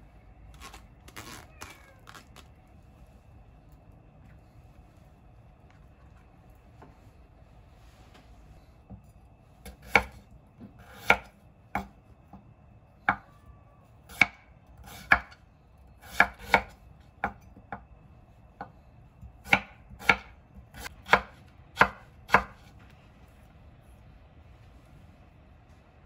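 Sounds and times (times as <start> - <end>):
knife chopping on cutting board: 9.6 - 10.2, 10.8 - 11.9, 14.1 - 15.4, 16.0 - 17.8, 19.4 - 22.7.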